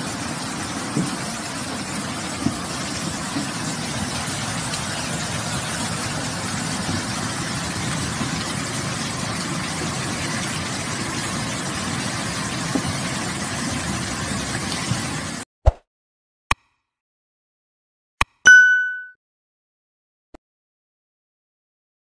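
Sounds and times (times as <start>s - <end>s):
cars driving through water: 0.0s - 15.4s
heavy rain hiss: 0.0s - 15.4s.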